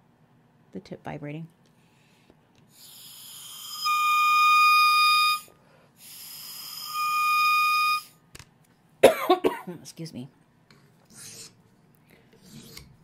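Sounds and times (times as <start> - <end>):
oboe reed squeak: 3.4 - 5.5, 6.4 - 8.1.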